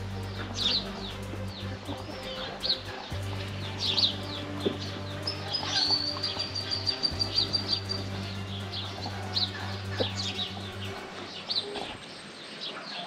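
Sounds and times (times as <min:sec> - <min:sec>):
steady low hum: 0:00.0 - 0:12.1
small birds chirping: 0:00.0 - 0:13.0.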